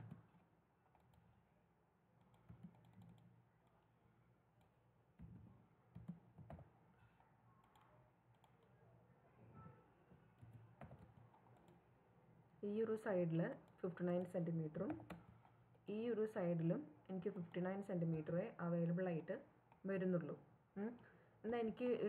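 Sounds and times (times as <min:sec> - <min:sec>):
faint keyboard typing: 0:00.0 - 0:01.5, 0:02.2 - 0:03.9, 0:04.5 - 0:09.0, 0:09.6 - 0:12.0, 0:13.1 - 0:15.7.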